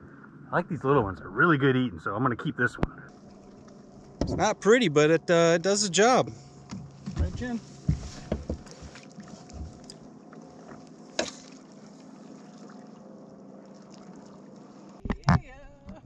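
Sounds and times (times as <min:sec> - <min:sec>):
boat motor running: 0:03.1 - 0:15.6
loud thumps: 0:04.2 - 0:04.5.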